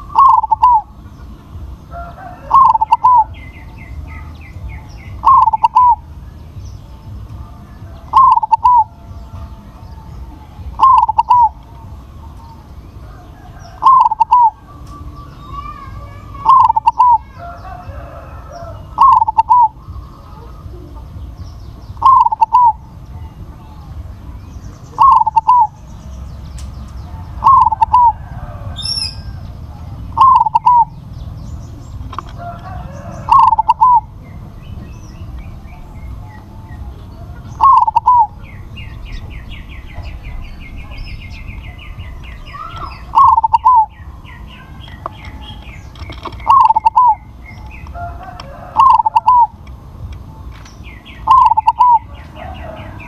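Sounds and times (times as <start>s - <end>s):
dove cooing: 0.0s - 6.1s, 7.8s - 9.3s, 10.1s - 11.6s, 12.3s - 14.9s, 16.0s - 21.1s, 22.0s - 22.9s, 24.9s - 25.8s, 27.1s - 31.0s, 32.0s - 34.2s, 36.4s - 38.4s, 42.6s - 43.9s, 44.6s - 47.3s, 47.9s - 49.6s, 51.2s - 53.0s
low steady rumble: 0.0s - 53.0s.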